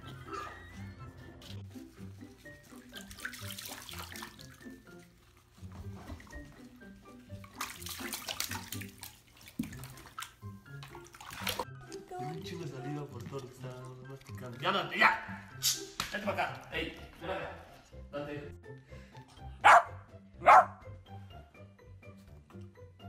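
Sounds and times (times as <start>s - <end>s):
background music: 0.0s - 23.0s
water splashing in bathtub: 2.3s - 15.0s.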